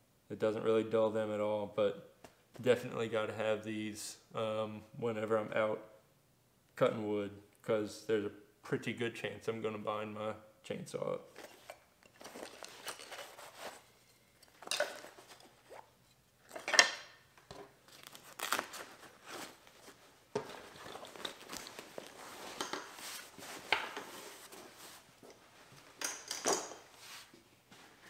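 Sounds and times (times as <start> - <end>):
nylon fabric rustling: 11.4 - 14.0, 17.8 - 26.0, 26.8 - 28.0.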